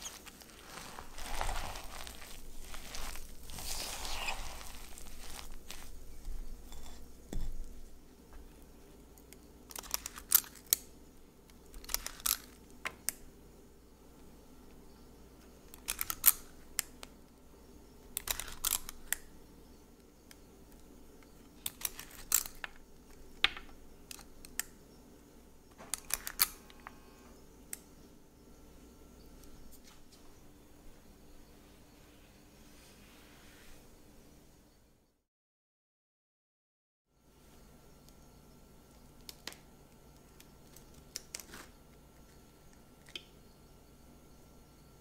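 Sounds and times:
cookie scoop clicking and scraping: 9.2 - 10.9, 11.5 - 13.1, 15.7 - 16.9, 18.2 - 19.2, 21.6 - 22.8, 25.9 - 26.7.

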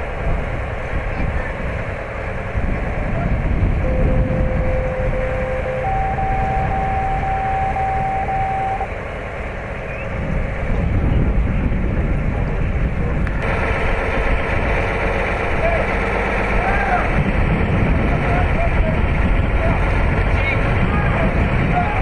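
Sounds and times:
wind on microphone: 0.0 - 8.9, 9.6 - 15.7, 16.5 - 22.0
truck engine rumbling: 0.0 - 22.0
steady electronic tone: 3.8 - 8.9.

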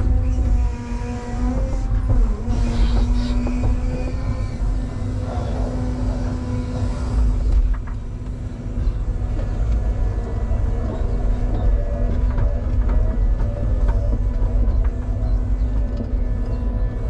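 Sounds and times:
electric drive and hydraulics hum: 0.0 - 17.0
excavator rumbling: 0.0 - 17.0.

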